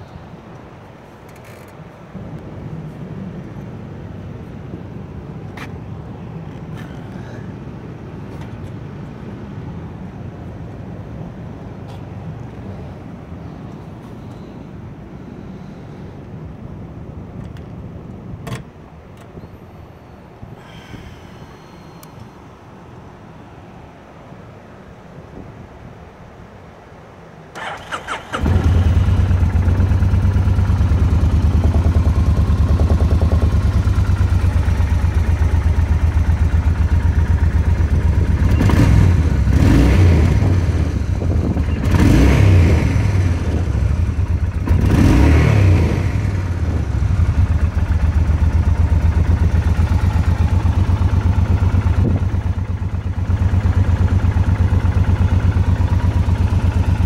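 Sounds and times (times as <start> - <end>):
motorcycle engine starting and idling: 27.5 - 57.0
motorcycle engine revving: 27.6 - 57.0.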